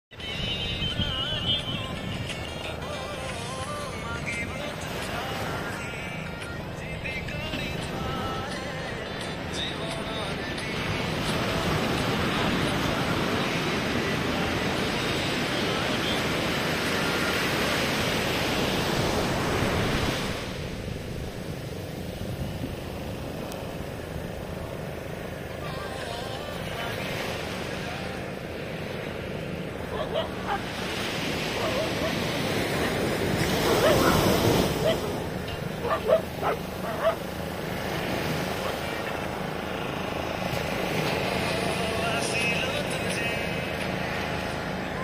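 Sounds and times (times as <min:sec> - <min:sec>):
surf breaking on shore: 0:00.1 - 0:45.0
wind: 0:00.1 - 0:45.0
wind buffeting microphone: 0:18.3 - 0:25.5
dog barking: 0:29.9 - 0:30.7, 0:31.5 - 0:32.2, 0:33.6 - 0:35.2, 0:35.8 - 0:37.2.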